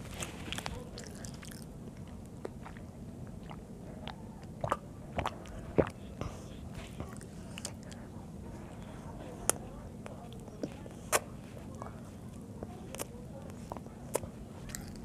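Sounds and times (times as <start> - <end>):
child chewing: 0.0 - 15.0
mouth clicks and smacks: 0.2 - 8.1, 8.8 - 11.7, 12.9 - 15.0.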